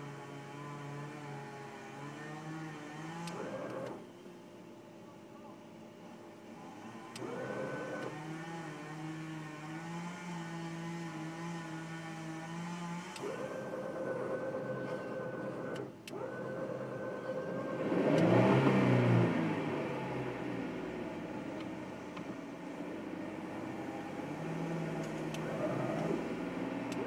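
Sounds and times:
engine revving: 0.0s - 4.0s, 6.7s - 27.0s
engine running: 6.0s - 27.0s.

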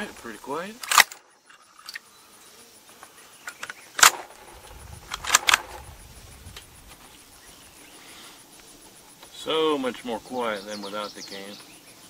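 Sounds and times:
rifle bolt clacking: 0.8s - 1.2s, 3.5s - 5.8s.

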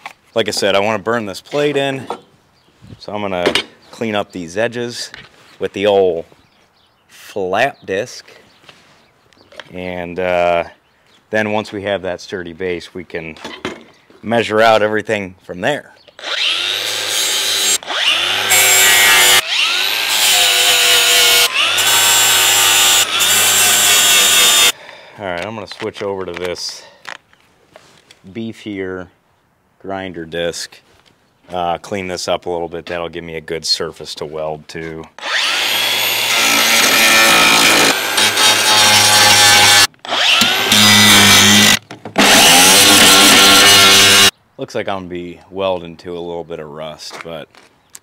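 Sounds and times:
angle grinder grinding steel: 16.2s - 24.7s, 35.2s - 44.3s.

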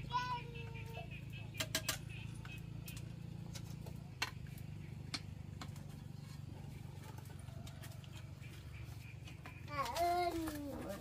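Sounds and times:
wood fire crackling: 1.2s - 9.1s.

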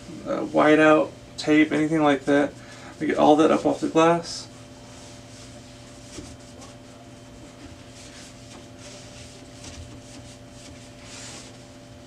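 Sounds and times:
cloth rubbing on glass: 4.6s - 12.0s.

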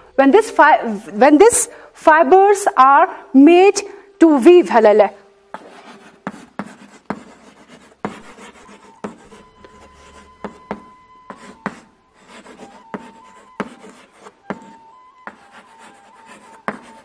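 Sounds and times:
chalk scratching on chalkboard: 5.5s - 17.0s
chalk tapping on chalkboard: 5.5s - 17.0s.

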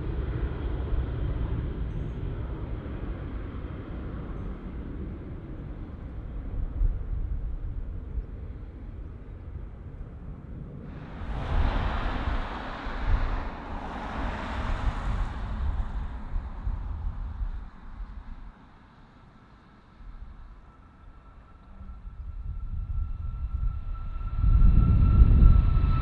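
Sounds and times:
wind rumbling on microphone: 0.0s - 26.0s
jet engine noise: 10.8s - 26.0s.

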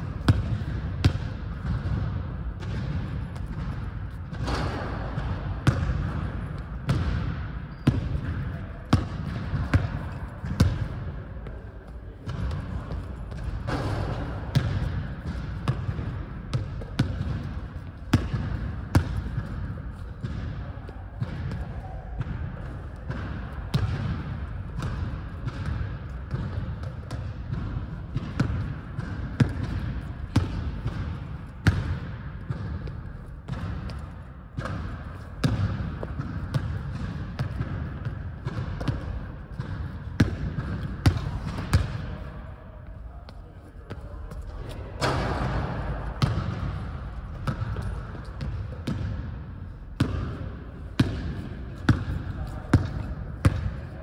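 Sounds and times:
basketball bouncing on hardwood floor: 0.2s - 6.3s, 12.3s - 20.6s, 24.8s - 32.9s, 33.5s - 42.1s, 45.0s - 49.3s, 50.0s - 50.3s, 51.0s - 53.7s.

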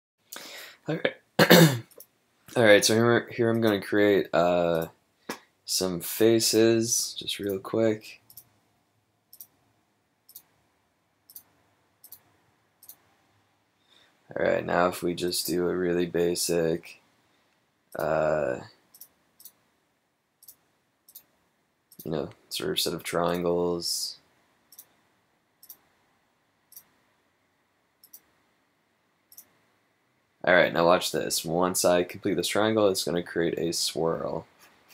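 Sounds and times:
computer mouse clicking: 8.3s - 8.5s, 9.3s - 9.6s, 10.3s - 10.5s, 11.3s - 13.0s, 18.9s - 19.6s, 20.4s - 21.3s, 25.6s - 25.8s, 28.0s - 28.3s, 29.3s - 29.5s.

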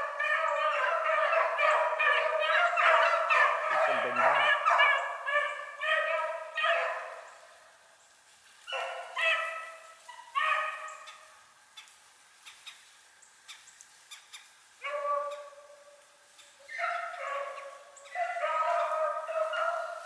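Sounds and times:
hounds baying: 0.0s - 7.3s, 8.7s - 11.3s, 14.8s - 15.9s, 16.6s - 20.0s.

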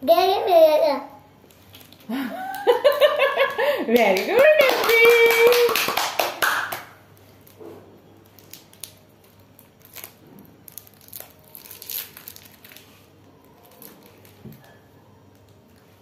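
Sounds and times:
plastic wrapper crinkling: 1.4s - 3.0s, 8.2s - 16.0s.

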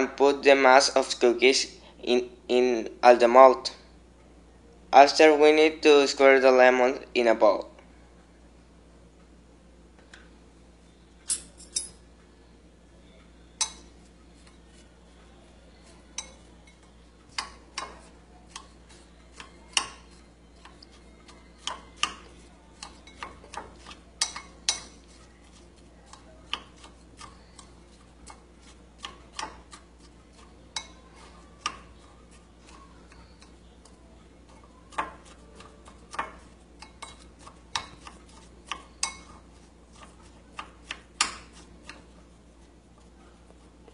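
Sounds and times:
metal spoon clinking on glass bowl: 24.2s - 25.0s, 38.7s - 39.4s.

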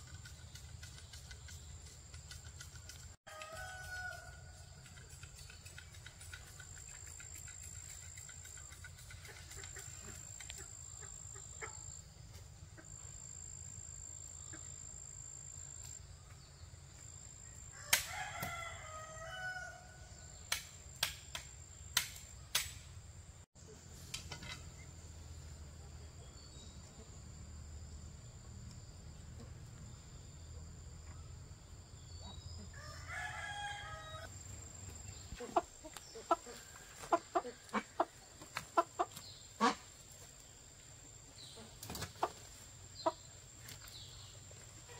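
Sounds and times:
rooster crowing: 3.3s - 4.6s, 17.7s - 20.1s, 32.7s - 34.3s.

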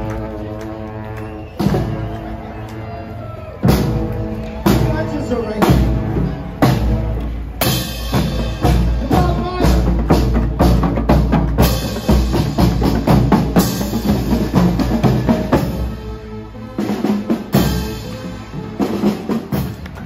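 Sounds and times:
woodwinds playing: 0.0s - 9.8s, 11.6s - 20.0s
snare drums: 1.4s - 2.2s, 3.6s - 16.0s, 16.8s - 20.0s
bass drum beat: 3.6s - 15.9s.

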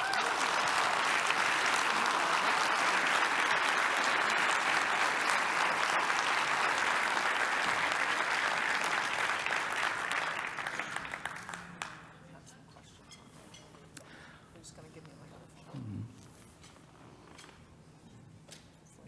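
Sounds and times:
audience applauding: 0.0s - 12.1s.

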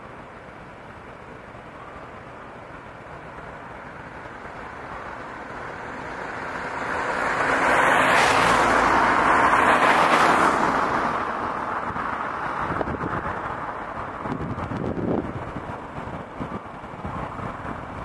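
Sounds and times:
vehicle passing by: 5.6s - 15.2s.

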